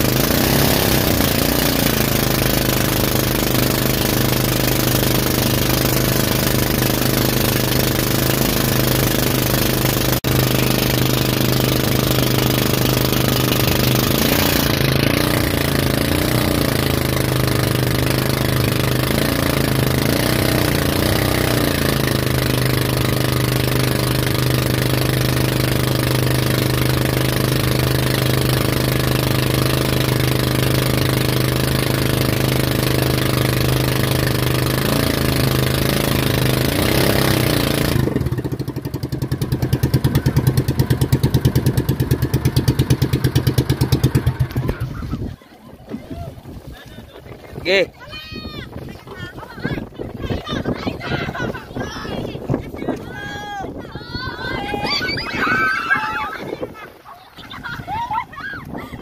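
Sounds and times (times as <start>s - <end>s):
motorboat engine running: 0.0s - 59.0s
rush of wind and water: 40.1s - 59.0s.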